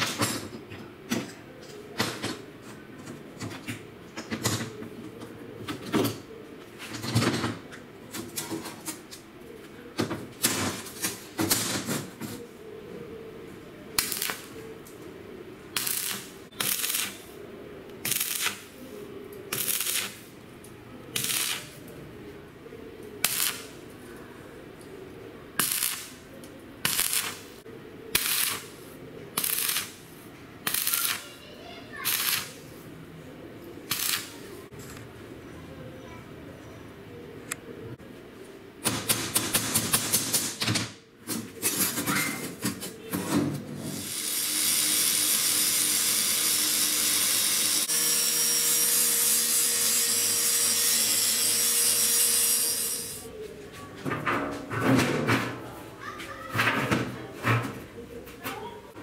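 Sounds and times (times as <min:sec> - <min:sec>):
arc welding crackling hiss: 0:14.0 - 0:14.6, 0:15.8 - 0:17.3, 0:18.0 - 0:18.7, 0:19.5 - 0:20.2, 0:21.2 - 0:21.8, 0:23.2 - 0:23.7, 0:25.6 - 0:26.2, 0:26.8 - 0:27.6, 0:28.2 - 0:28.8, 0:29.4 - 0:30.0, 0:30.6 - 0:31.4, 0:32.0 - 0:32.6, 0:33.9 - 0:34.4, 0:43.9 - 0:53.3.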